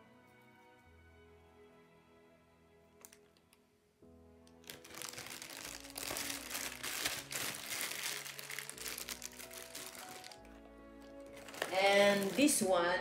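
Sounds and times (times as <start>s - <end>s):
plastic bag crinkling: 4.5s - 12.8s.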